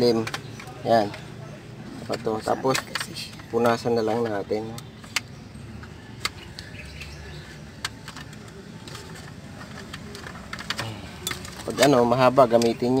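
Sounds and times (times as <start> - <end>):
plastic clicks and taps: 2.1 - 6.8, 7.4 - 11.7.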